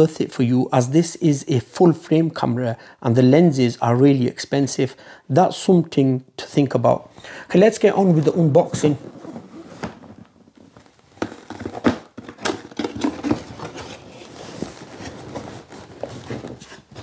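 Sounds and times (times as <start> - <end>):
card and paper rustling: 8.2 - 17.0.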